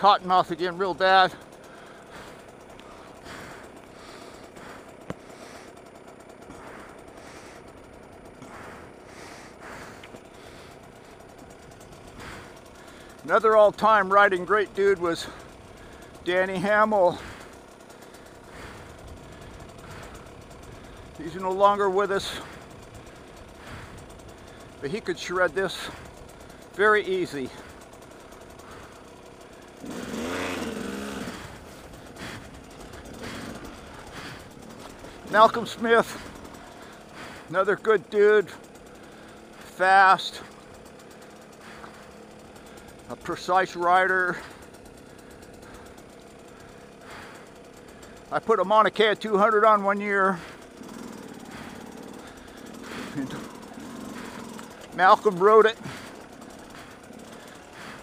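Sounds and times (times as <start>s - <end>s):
dirt bike engine idling: 0.0s - 58.0s
breathing: 1.3s - 13.2s, 15.2s - 16.2s, 17.1s - 21.2s, 22.2s - 24.8s, 25.7s - 26.8s, 27.4s - 35.4s, 36.0s - 37.6s, 38.5s - 43.1s, 44.3s - 48.3s, 50.2s - 55.0s, 55.7s - 58.0s.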